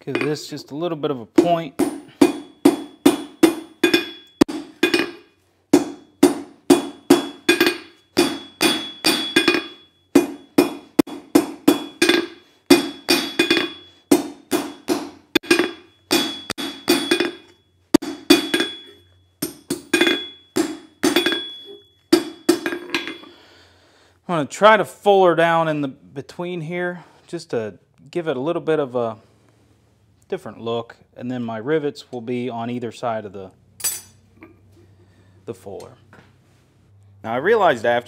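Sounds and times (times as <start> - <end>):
hammer striking metal on anvil: 0.0 - 0.4, 1.4 - 23.3, 33.8 - 34.2
anvil ringing: 0.0 - 0.5, 1.4 - 23.4, 33.8 - 34.2.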